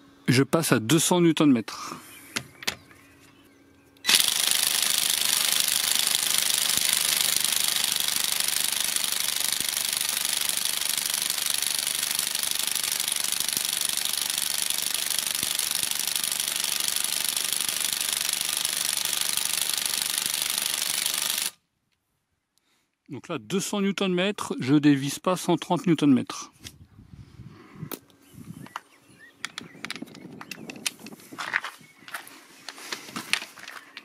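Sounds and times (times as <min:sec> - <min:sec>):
impact wrench hammering: 0:04.1 - 0:21.5.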